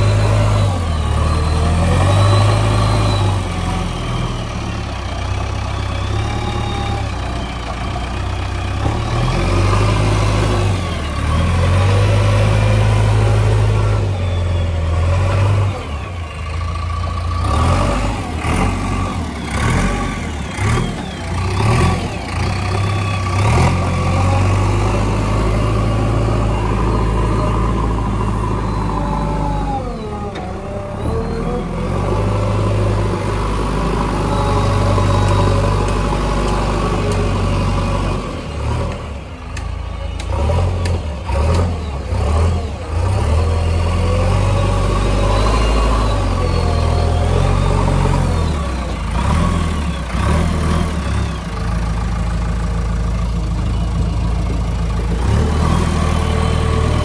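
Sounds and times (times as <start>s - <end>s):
diesel engine revving: 0.0s - 57.0s.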